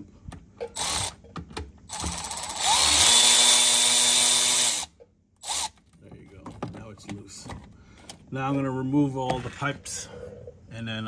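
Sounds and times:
cordless ratchet whirring: 0.8 - 1.2, 1.9 - 5.8.

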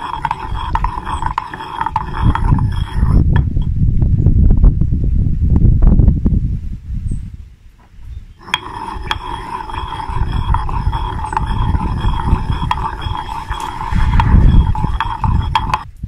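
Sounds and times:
stone pestle scraping mortar: 0.0 - 3.7, 8.4 - 15.9.

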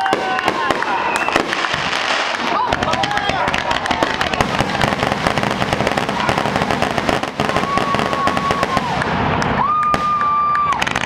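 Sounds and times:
firework high whistle: 0.0 - 2.4, 7.4 - 11.0
fireworks crackling pops: 0.0 - 11.0.

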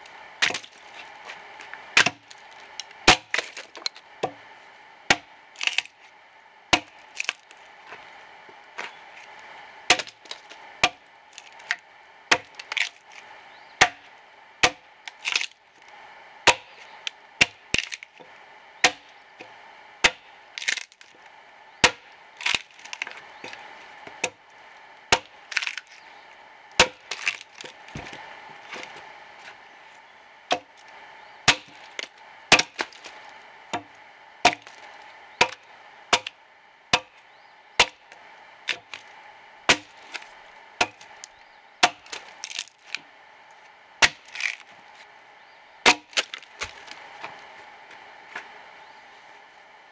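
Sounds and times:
wood splitting crackle: 0.0 - 4.4, 5.1 - 6.1, 6.7 - 29.7, 30.5 - 45.1, 45.8 - 48.6
axe chopping into log: 0.4 - 0.7, 2.0 - 2.3, 3.1 - 4.4, 6.7 - 7.4, 9.9 - 11.0, 13.8 - 14.0, 14.6 - 15.5, 16.5 - 16.7, 21.8 - 23.1, 26.8 - 28.2, 31.5 - 33.1, 33.8 - 34.8, 35.4 - 35.6, 37.8 - 38.0, 39.7 - 40.2, 41.8 - 42.7, 44.0 - 44.7, 45.8 - 46.8.

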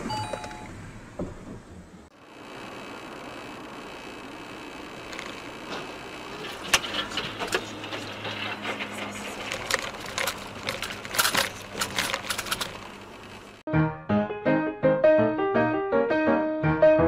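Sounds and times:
car engine and road noise: 0.0 - 13.7
debris clattering against car: 5.6 - 13.6.

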